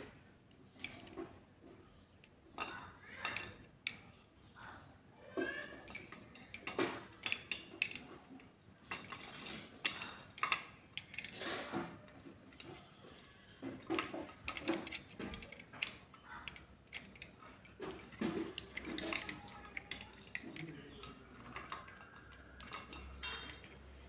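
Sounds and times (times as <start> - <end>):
metallic clicks and clinks: 5.4 - 24.0.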